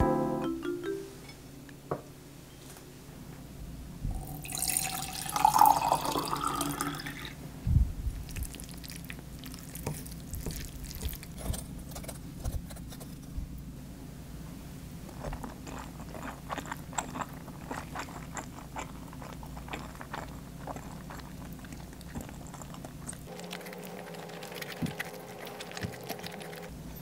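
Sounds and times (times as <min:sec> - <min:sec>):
water pouring into a glass: 0:04.2 - 0:07.4.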